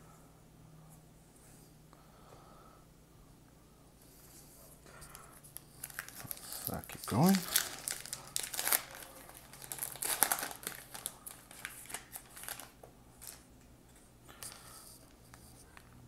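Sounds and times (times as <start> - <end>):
cards rustling: 5.6 - 13.4
wrapper crinkling and tearing: 5.6 - 13.4.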